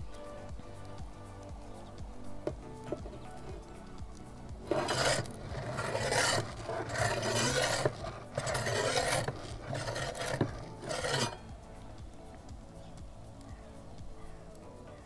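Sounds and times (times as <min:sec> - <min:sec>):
metal peel scraping on stone: 0:02.5 - 0:03.7, 0:04.6 - 0:11.5.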